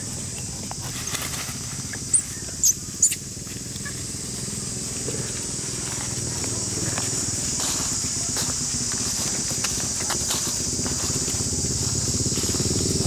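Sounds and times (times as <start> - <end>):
rustle of dry leaves: 0.0 - 13.0.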